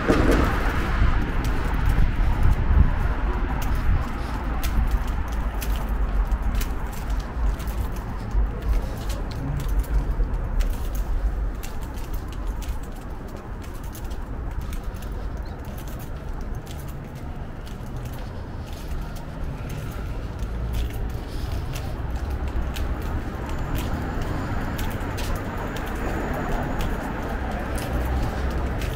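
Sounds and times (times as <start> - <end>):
steady low rumble: 0.0 - 28.9.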